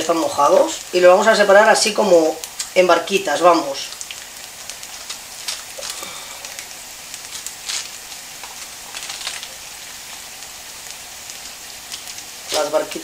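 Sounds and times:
garlic sizzling in oil: 0.0 - 13.0.

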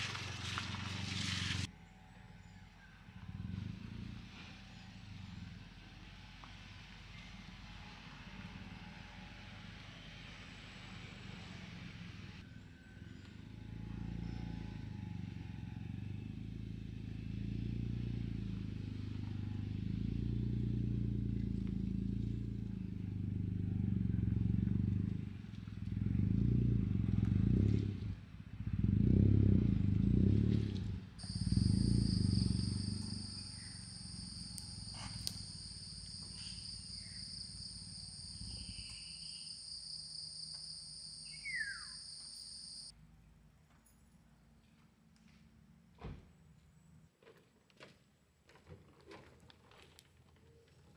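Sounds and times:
car engine revving and idling: 13.1 - 39.0.

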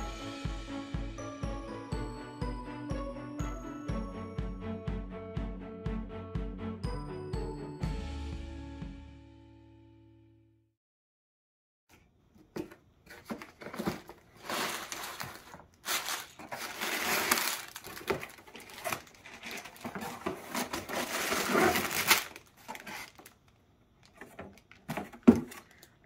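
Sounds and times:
cardboard box rustling: 12.6 - 23.4, 24.2 - 25.8
plastic bags crinkling: 13.1 - 26.0.

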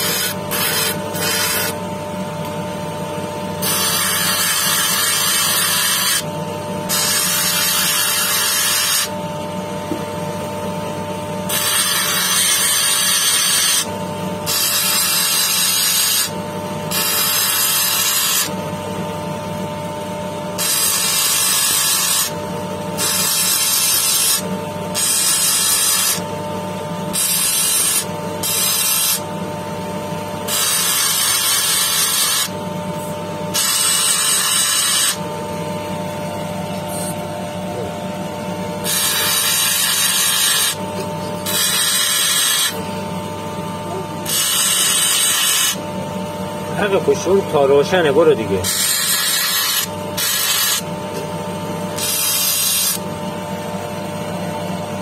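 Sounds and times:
stone grinding on a wheel: 0.0 - 1.8, 3.6 - 6.3, 6.9 - 9.1, 11.5 - 16.3, 16.9 - 18.5, 20.6 - 22.3, 23.0 - 26.2, 27.1 - 29.3, 30.5 - 32.6, 33.5 - 35.2, 38.8 - 42.8, 44.2 - 45.8, 48.6 - 50.9, 52.0 - 53.0
machine motor hum: 0.0 - 55.0.

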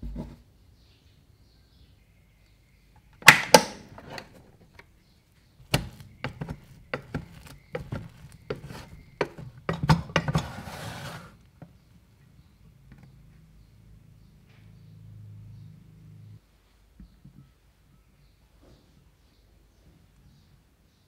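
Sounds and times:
rice cooker lid clicks: 3.2 - 3.8
rice paddle scraping in pot: 5.6 - 11.5
wet rice rustling: 5.7 - 9.4.

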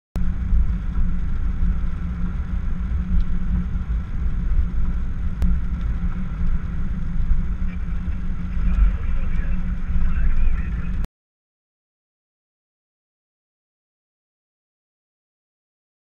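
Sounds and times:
car engine rumble: 0.2 - 11.1
tyres on wet road: 0.2 - 11.1.

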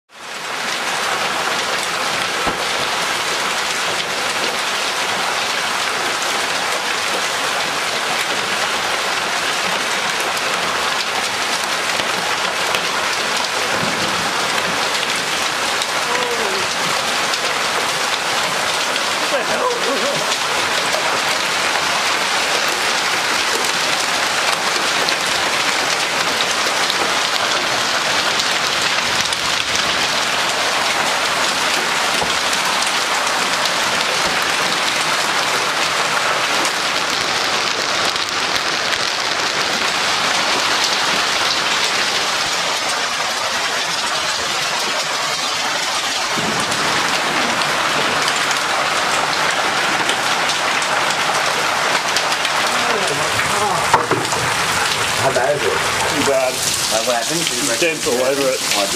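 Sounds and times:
hail and rain falling hard: 0.1 - 58.9.

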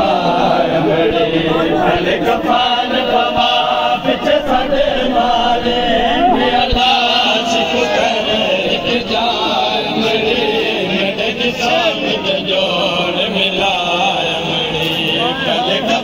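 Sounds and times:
crowd of men chanting: 0.0 - 16.0.

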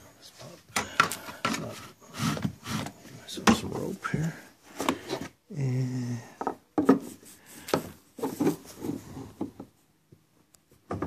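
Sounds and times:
handling noise rubbing and knocking: 6.8 - 9.8.

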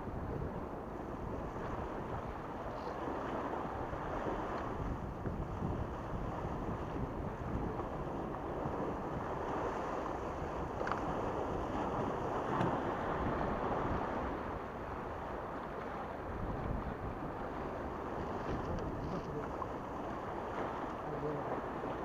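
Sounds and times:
wind on microphone: 0.0 - 22.0.

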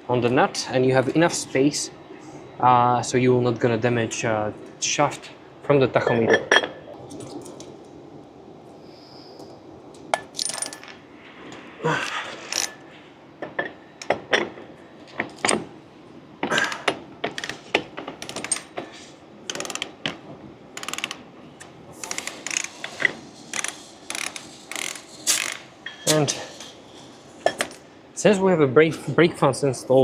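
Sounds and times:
ratchet wrench clicking: 20.8 - 21.2, 22.0 - 22.8, 23.5 - 25.6.

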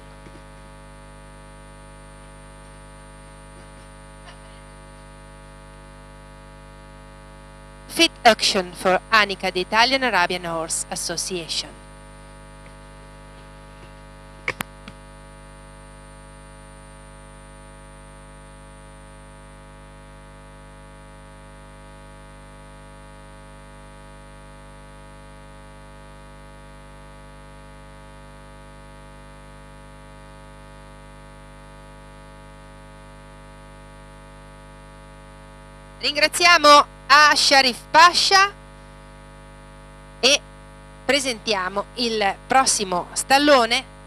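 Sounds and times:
electrical mains hum: 0.0 - 44.0
double click: 14.4 - 15.0.

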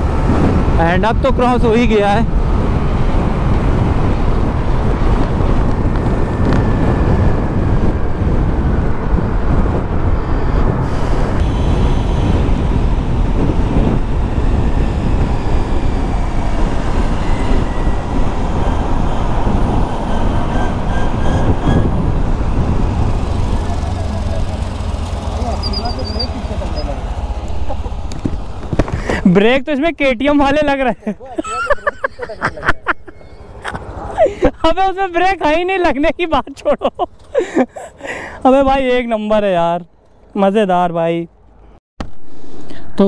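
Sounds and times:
wind buffeting microphone: 0.0 - 29.3
road rumble: 0.0 - 43.0.

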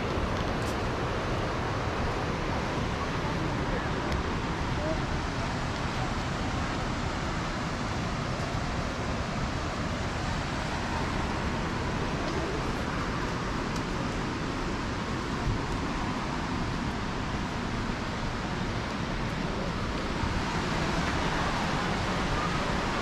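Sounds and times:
water rushing over rapids: 0.0 - 23.0.

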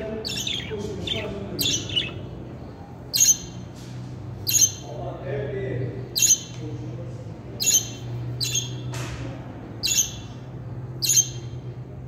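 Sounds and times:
budgerigars chirping and squawking: 0.2 - 2.4, 3.1 - 3.7, 4.4 - 4.9, 6.2 - 6.5, 7.6 - 8.9, 9.8 - 11.6.

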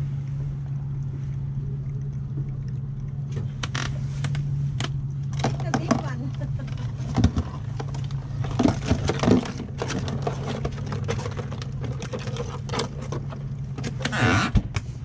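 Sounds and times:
boat motor humming: 0.0 - 15.0
crab shells clattering in cooler: 5.3 - 14.3.

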